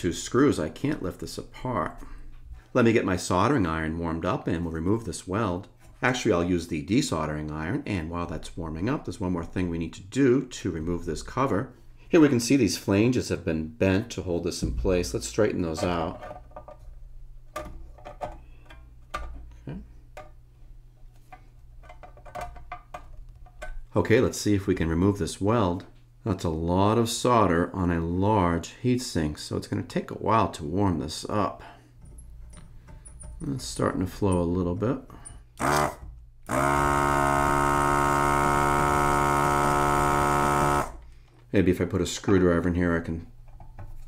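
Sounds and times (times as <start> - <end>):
desoldering pump running: 35.6 - 41.1.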